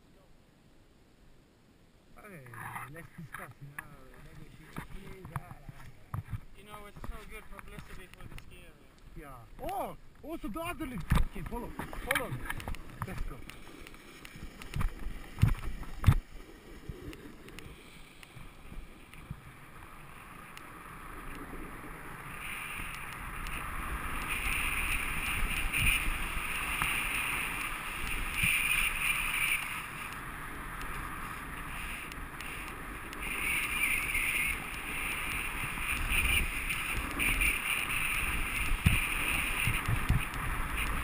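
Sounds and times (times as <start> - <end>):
wind rumbling on microphone: 2.6 - 41.0
snowboard edges hissing on snow: 16.3 - 41.0.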